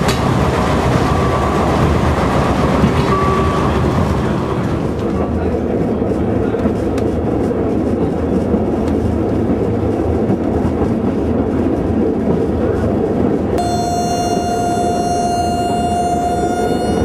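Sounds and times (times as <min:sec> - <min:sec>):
diesel railcar engine drone: 0:00.0 - 0:17.0
rail rumble: 0:00.0 - 0:17.0
steady high tone: 0:13.6 - 0:17.0.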